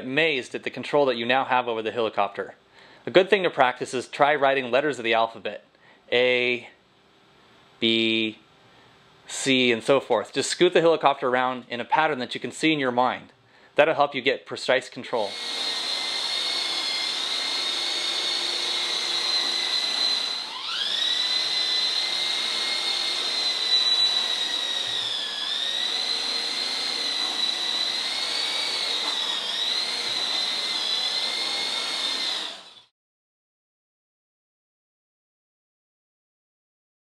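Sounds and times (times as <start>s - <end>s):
toy helicopter rotor whine: 15.2s - 32.9s.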